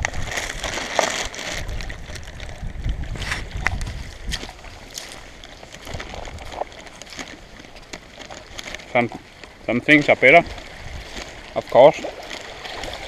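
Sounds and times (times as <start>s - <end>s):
wind buffeting microphone: 1.5s - 6.7s, 9.6s - 13.0s.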